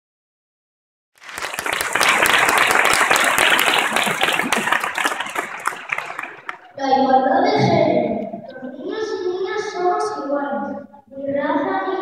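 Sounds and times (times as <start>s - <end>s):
audience applauding: 1.2s - 6.8s.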